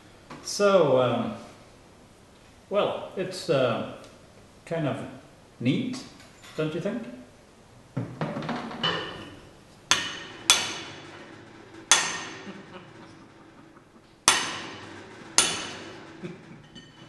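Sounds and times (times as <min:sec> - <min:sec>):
hammer striking steel sheet: 0:09.9 - 0:16.2.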